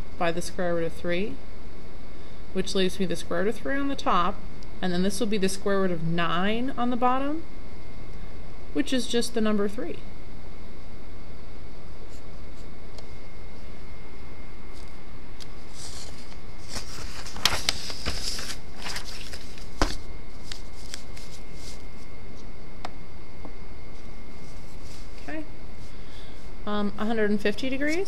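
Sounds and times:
steady background hiss: 0.0 - 28.0
paper being handled: 14.7 - 22.1, 27.7 - 28.0.

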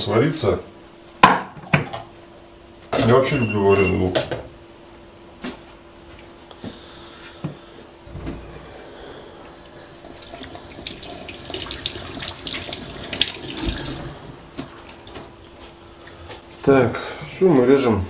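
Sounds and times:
water running into a metal sink: 9.5 - 14.2.

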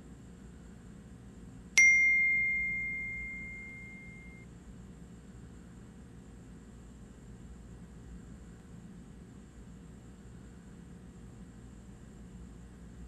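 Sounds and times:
faint room hiss: 0.1 - 5.7
phone notification ding: 1.8 - 4.4.

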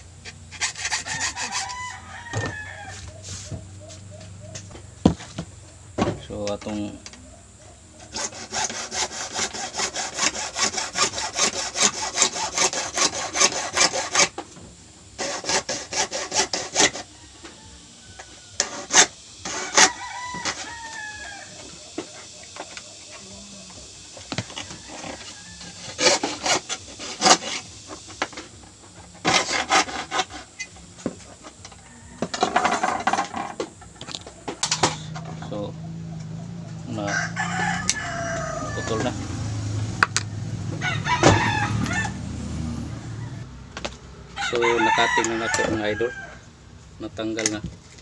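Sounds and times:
hacksaw cutting plastic pipe: 0.2 - 1.8, 8.0 - 14.5, 15.2 - 17.1, 18.6 - 20.9, 24.2 - 31.2.

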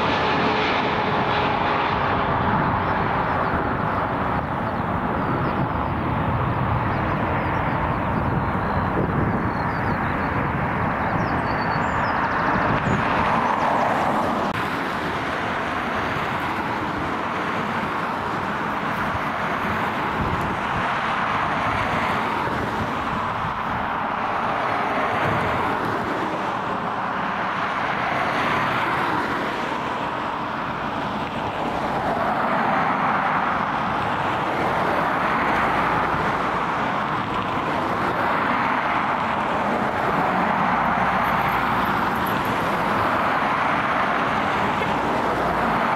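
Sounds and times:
jet engine roar: 0.0 - 45.9.

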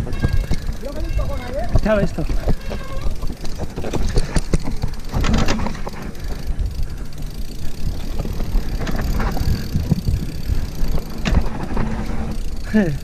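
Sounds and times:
bike rattling over bumps: 0.0 - 13.0
bike tyres rumbling over ground: 0.0 - 13.0.

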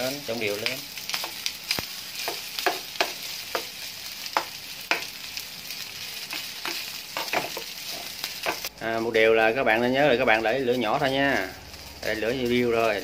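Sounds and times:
steady sizzle: 0.0 - 13.0
metal spatula scraping frying pan: 6.2 - 8.7.

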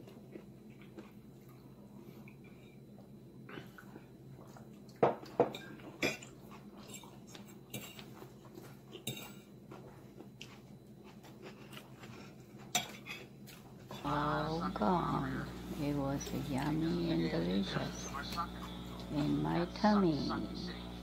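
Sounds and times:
fork clinking against a plate: 5.5 - 8.1, 9.0 - 9.5, 12.7 - 13.3.

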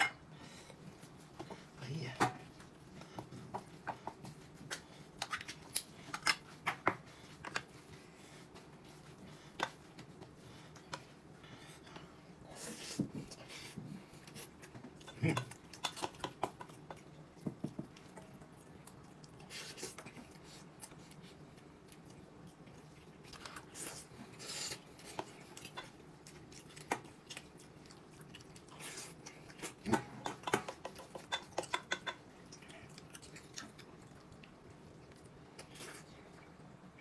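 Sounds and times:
chopsticks and spoons clicking on bowls: 15.0 - 17.1, 29.9 - 32.2.

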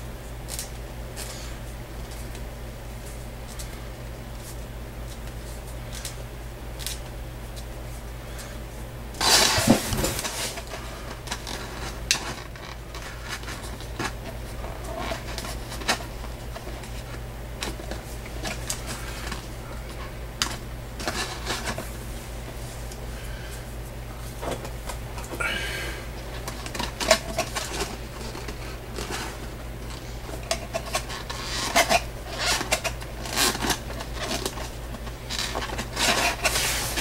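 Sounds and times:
steady low hum: 0.0 - 37.0
plastic crinkling rustle: 26.3 - 37.0.

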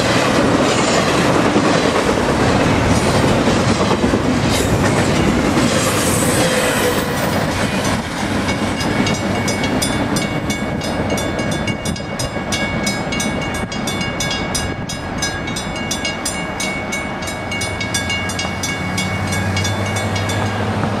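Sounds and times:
freight train cars rumbling: 0.0 - 21.0
railroad crossing bell ringing: 6.2 - 21.0.

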